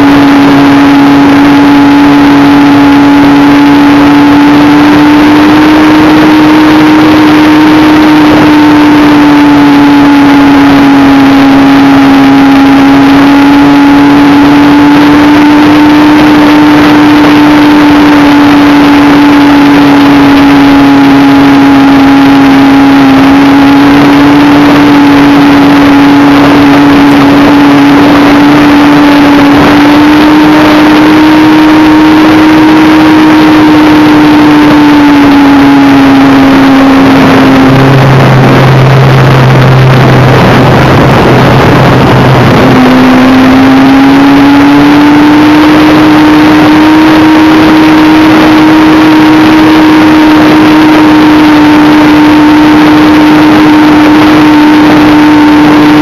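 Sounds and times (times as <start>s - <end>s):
model plane motor humming: 0.0s - 56.0s
wind noise: 0.0s - 56.0s.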